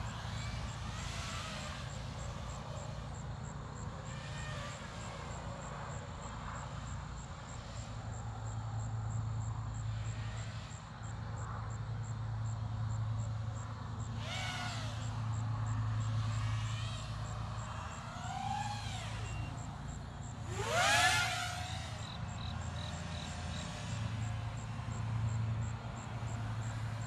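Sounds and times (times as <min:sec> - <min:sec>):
quadcopter motors whining: 0:00.0 - 0:06.8, 0:14.1 - 0:27.0.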